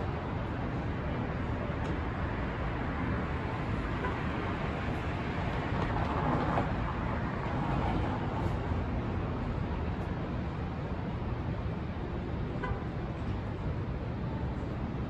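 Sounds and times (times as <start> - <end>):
rumble of street traffic: 0.0 - 15.0.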